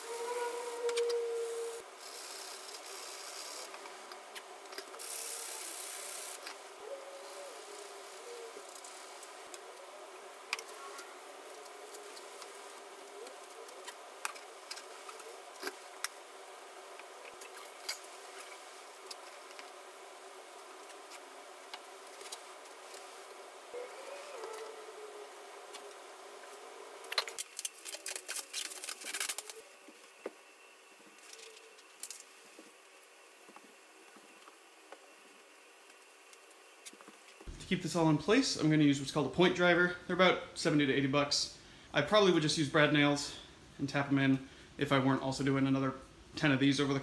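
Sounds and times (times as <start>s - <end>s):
hiss: 0.0s - 4.0s, 4.8s - 9.4s.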